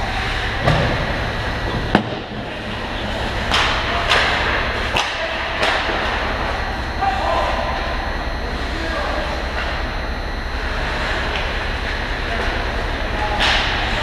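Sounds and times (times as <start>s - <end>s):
low rink hum: 0.0s - 14.0s
hockey sticks and puck clacking: 2.8s - 6.5s, 10.8s - 14.0s.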